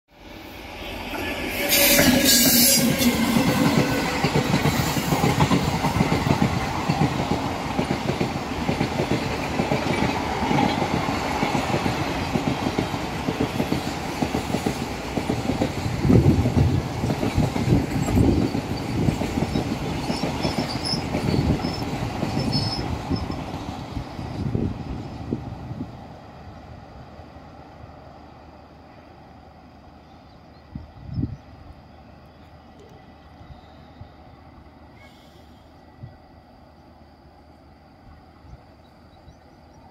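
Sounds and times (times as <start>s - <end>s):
passenger train passing: 0.1s - 39.9s.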